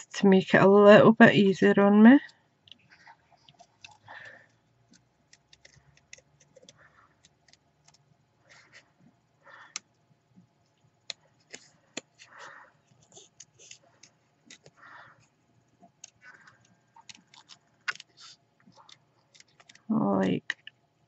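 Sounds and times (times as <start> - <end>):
scissors snipping paper: 4.9 - 8.8, 16.0 - 20.7
paper rustling: 16.2 - 19.9.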